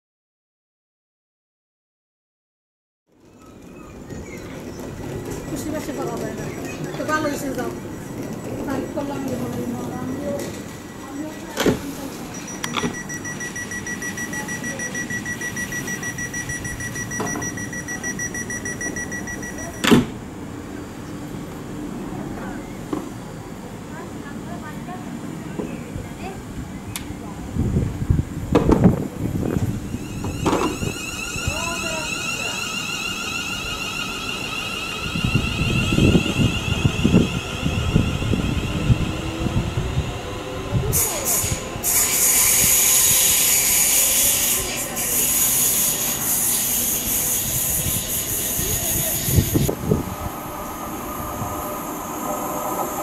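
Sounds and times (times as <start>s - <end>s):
train door warning beeping: 3.4s - 21.5s, 28.8s - 53.0s.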